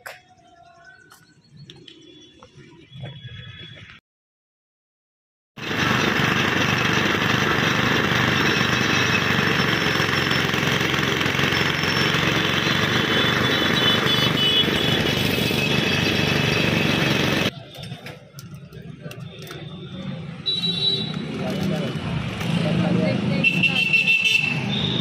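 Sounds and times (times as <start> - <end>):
small engine running loudly: 5.6 - 17.5.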